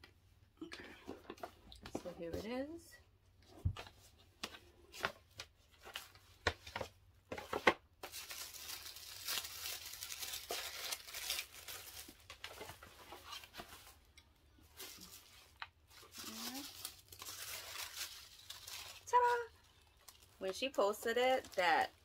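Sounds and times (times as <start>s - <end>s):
paper crinkling: 5.0s - 22.0s.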